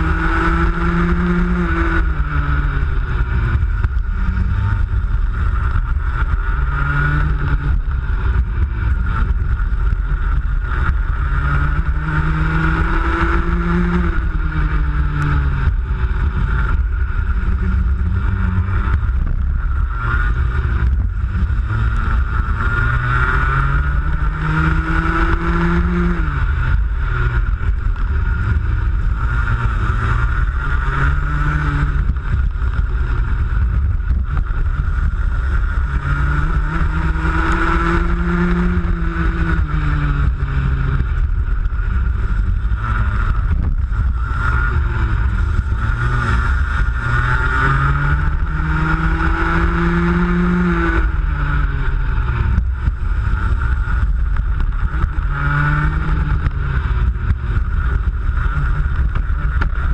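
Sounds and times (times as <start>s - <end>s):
racing kart engine: 0.0s - 59.9s.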